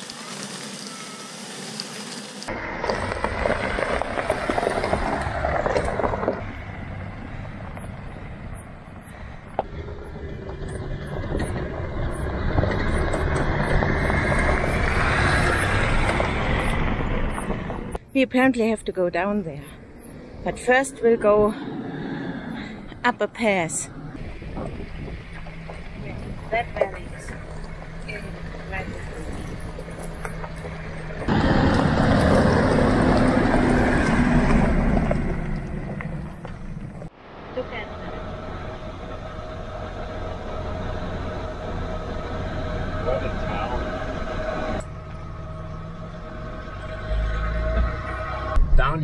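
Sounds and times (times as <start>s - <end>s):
tyres crunching on gravel: 2.1s - 18.0s, 24.2s - 37.1s
diesel engine rumble: 2.5s - 49.0s.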